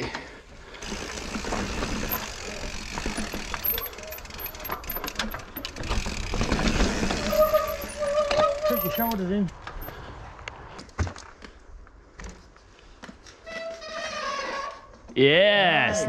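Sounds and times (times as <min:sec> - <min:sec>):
freehub ticking: 0:00.8 - 0:09.1
bike frame rattling and knocking: 0:00.8 - 0:09.2.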